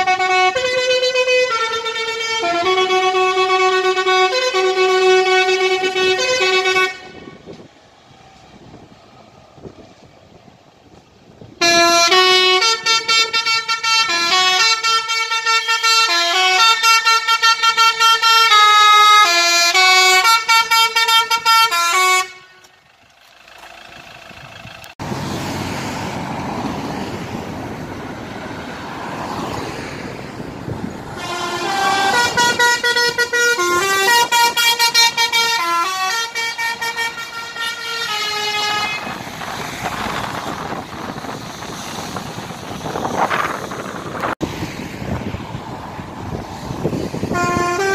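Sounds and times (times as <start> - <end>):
musical vehicle horn tune: 0.0 - 7.6, 11.6 - 22.8, 31.1 - 39.3, 47.2 - 47.9
road traffic noise: 0.0 - 47.9.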